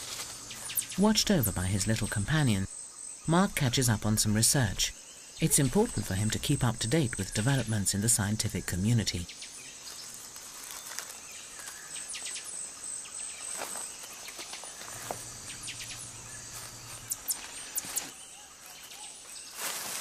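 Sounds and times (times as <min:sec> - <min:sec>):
high insect trill: 0:00.0 - 0:20.0
short chirping calls: 0:00.5 - 0:02.6, 0:14.2 - 0:19.6
low hum: 0:15.0 - 0:17.3
sharp clicks: 0:17.0 - 0:18.1.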